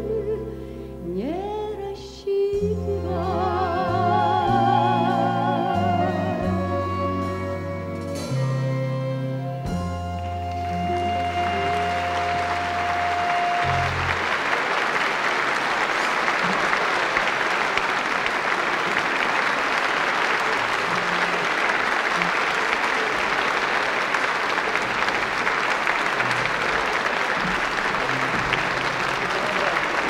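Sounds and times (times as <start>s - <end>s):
audience applauding: 10.2s - 30.0s.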